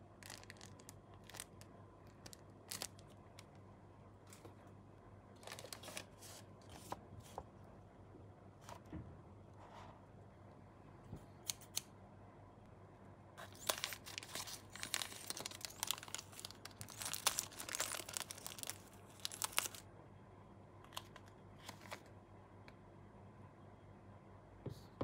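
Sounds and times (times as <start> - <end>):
plastic bag crinkling: 0.2 - 3.1, 5.4 - 6.2, 13.4 - 19.8.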